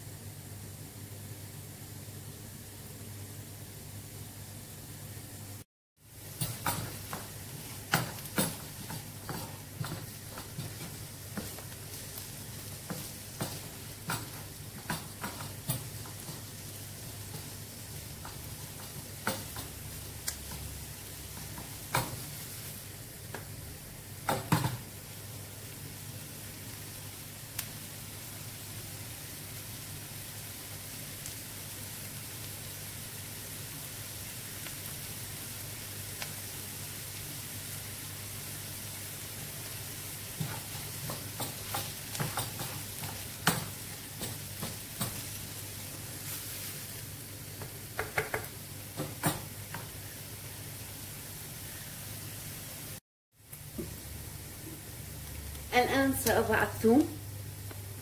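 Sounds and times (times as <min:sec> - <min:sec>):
onions sizzling in a frying pan: 0:00.3 - 0:58.0
wooden spoon scraping a pan: 0:06.3 - 0:20.7.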